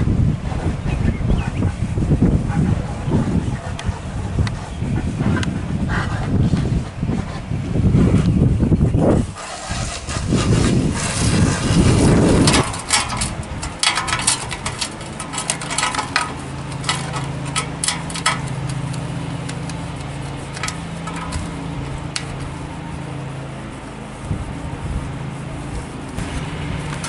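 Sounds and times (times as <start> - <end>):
low engine-like hum: 0.0 - 27.0
towel rubbing on metal: 9.0 - 27.0
loud low rushing noise: 20.4 - 27.0.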